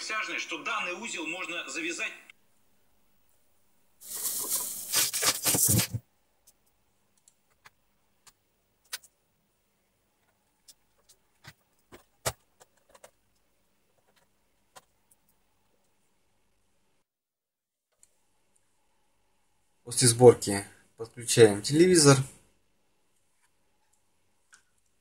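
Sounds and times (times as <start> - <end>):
loud rustling handling noise: 4.0 - 6.0.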